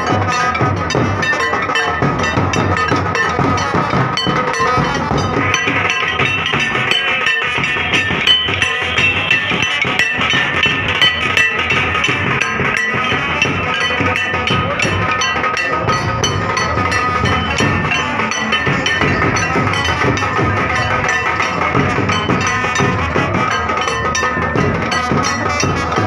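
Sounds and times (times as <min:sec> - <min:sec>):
festival music with dense drumming: 0:00.0 - 0:26.0.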